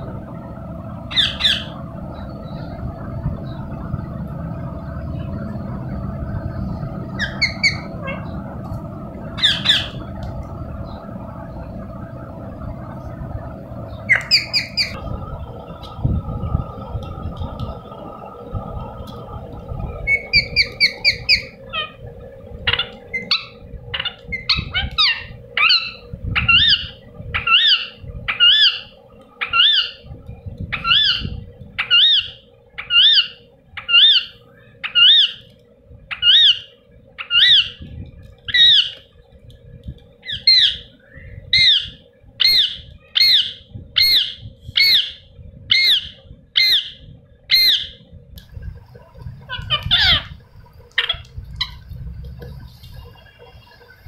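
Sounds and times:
high parakeet chirps: 1.1s - 1.8s, 7.2s - 8.4s, 9.4s - 10.1s, 13.9s - 15.0s, 20.0s - 22.0s, 22.6s - 30.1s, 30.7s - 35.5s, 36.1s - 37.8s, 38.5s - 39.0s, 40.2s - 48.0s, 49.4s - 51.8s
parakeet squawking: 1.1s - 1.8s, 7.2s - 8.4s, 9.4s - 10.1s, 14.0s - 15.0s, 20.0s - 22.0s, 22.6s - 30.1s, 30.7s - 35.5s, 36.1s - 37.8s, 38.5s - 39.0s, 40.2s - 40.9s, 41.5s - 48.0s, 49.4s - 51.9s.

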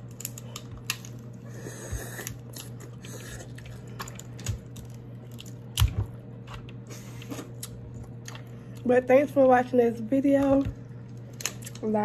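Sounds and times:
crab shell clicking and crackling: 0.0s - 1.4s
biting and chewing: 0.0s - 8.8s.

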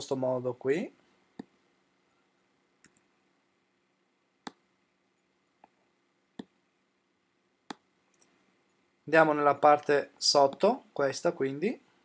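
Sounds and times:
computer mouse clicks: 2.8s - 3.1s.

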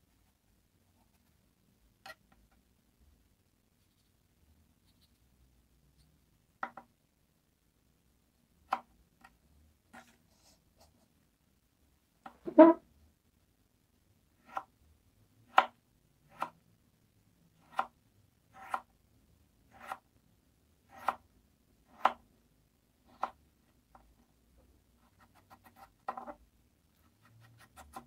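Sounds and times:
knife cutting on plastic board: 15.5s - 16.6s, 18.5s - 18.9s, 19.7s - 20.0s, 20.9s - 21.2s.

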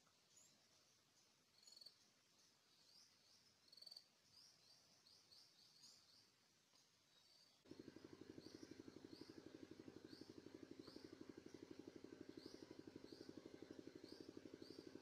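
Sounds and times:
rapid bird trills: 7.6s - 15.0s.

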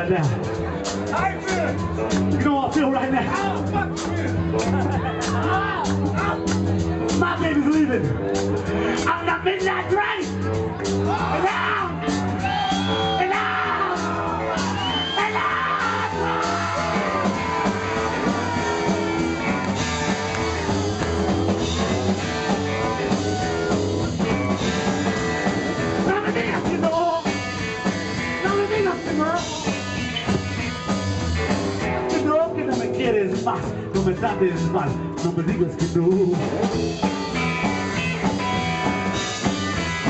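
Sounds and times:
live rockabilly band playing: 0.0s - 40.0s
electric guitar: 10.2s - 40.0s.

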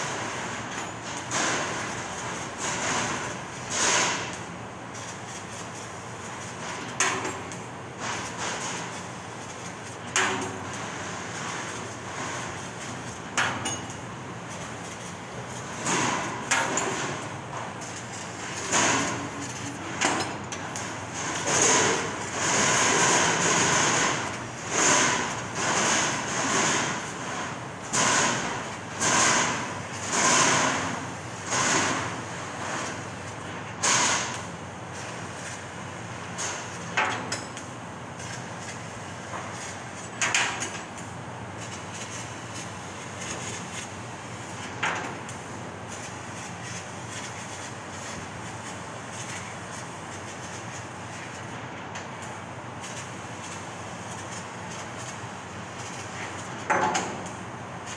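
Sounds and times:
laser cutter gas hissing: 0.0s - 57.9s
steady machine noise: 20.9s - 34.4s.

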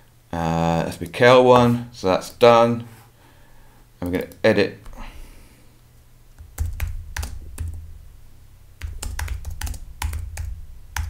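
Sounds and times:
keyboard typing: 6.3s - 7.9s, 8.8s - 11.0s.

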